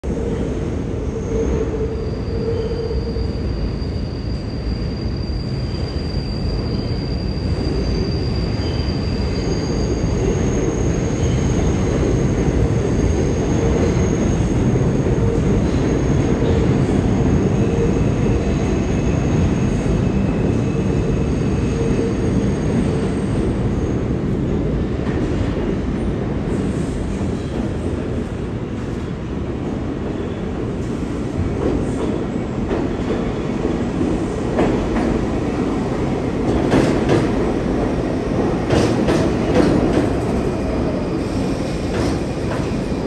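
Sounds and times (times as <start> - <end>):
subway train rumbling on rails: 0.0 - 43.0
high-pitched wheel squeals: 1.2 - 11.5.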